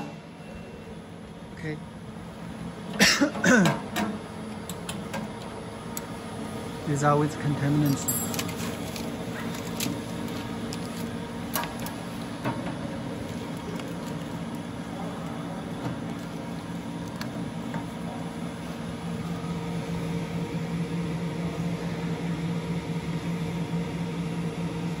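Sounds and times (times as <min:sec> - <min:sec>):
machine mechanical hum: 0:00.0 - 0:25.0.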